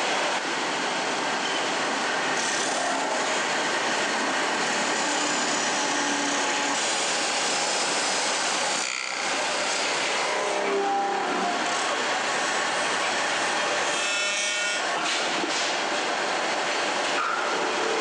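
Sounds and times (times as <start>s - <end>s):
lathe running: 2.3s - 15.0s.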